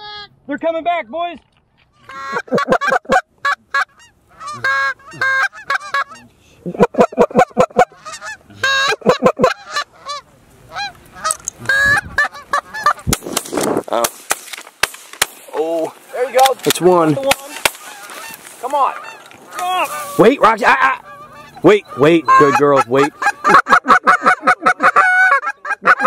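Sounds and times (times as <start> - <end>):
geese honking: 2.0 - 13.2, 15.6 - 26.0.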